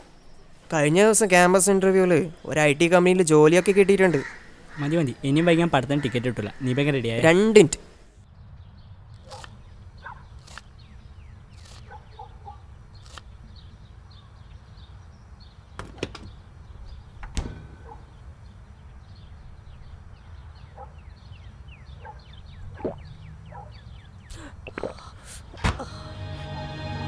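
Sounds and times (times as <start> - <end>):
small birds chirping: 8.2 - 25.5.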